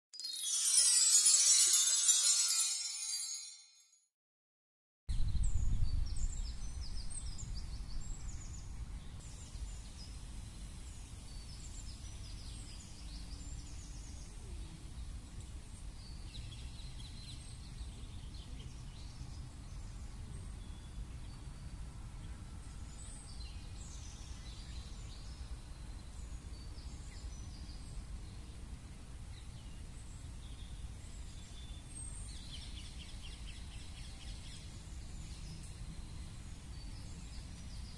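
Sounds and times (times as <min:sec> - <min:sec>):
small birds chirping: 0:29.4 - 0:37.9.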